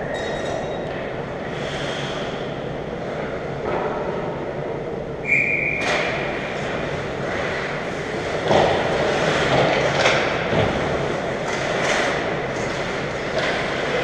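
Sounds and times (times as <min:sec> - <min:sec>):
skates on ice: 0:06.1 - 0:14.0
hockey sticks and puck knocking: 0:07.3 - 0:14.0.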